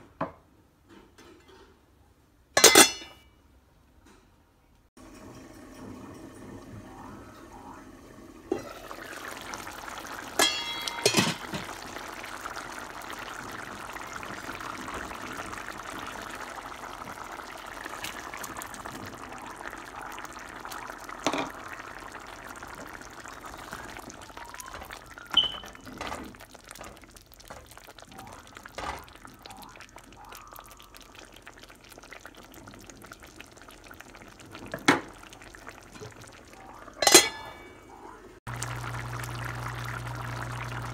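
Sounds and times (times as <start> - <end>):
pan lid clinking: 2.6 - 3.2, 10.4 - 11.7, 37.0 - 37.7
gravy simmering and bubbling: 5.0 - 40.9.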